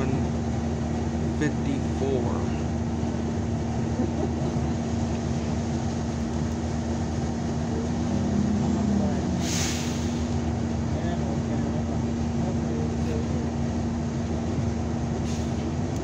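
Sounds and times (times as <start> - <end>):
bus engine and road drone: 0.0 - 16.0
short sharp hiss: 9.4 - 10.3, 15.2 - 15.6.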